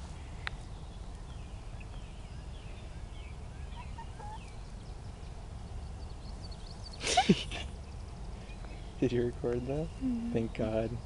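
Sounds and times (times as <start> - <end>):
hens chirping: 1.8 - 9.0
hens clucking softly: 3.7 - 4.6.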